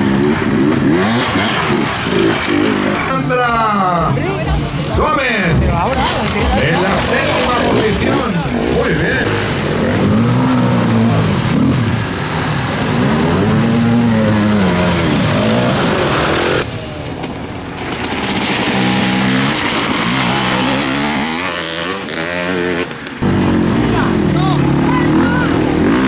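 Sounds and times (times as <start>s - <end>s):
dirt bike engines revving: 0.0s - 26.0s
water splashing: 4.4s - 16.8s, 17.6s - 22.0s.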